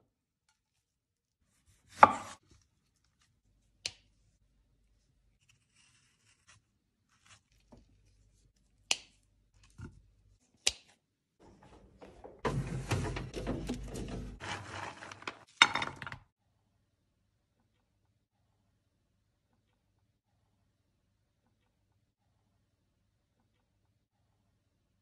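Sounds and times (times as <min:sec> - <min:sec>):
knife chopping on wooden board: 0:01.9 - 0:02.4.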